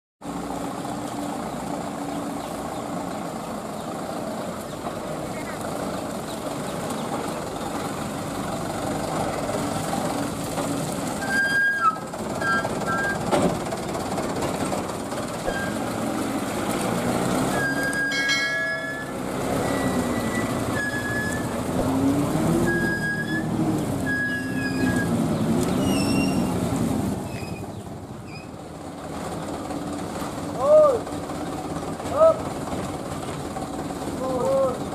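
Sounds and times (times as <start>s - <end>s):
diesel truck engine running: 0.2s - 34.9s
high-pitched squeals: 11.2s - 13.3s, 15.4s - 16.0s, 17.4s - 21.6s, 22.5s - 26.6s.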